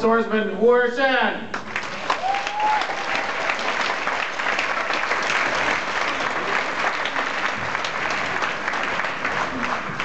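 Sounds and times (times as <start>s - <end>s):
audience applauding: 1.6s - 10.0s
person whooping: 2.2s - 3.3s.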